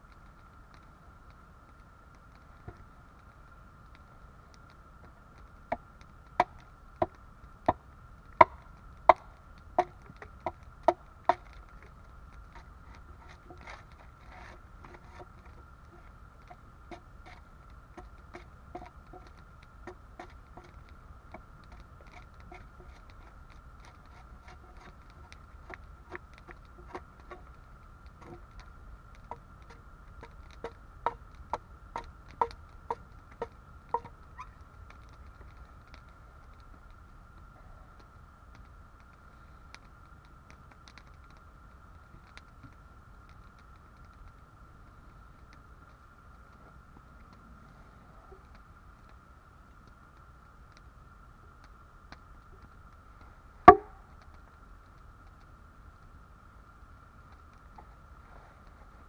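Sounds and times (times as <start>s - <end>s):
hatchet chopping log: 53.7s - 54.0s.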